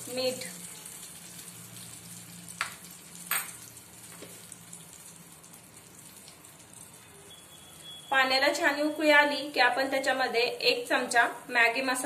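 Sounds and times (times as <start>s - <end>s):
liquid sizzling in pan: 0.0s - 9.4s.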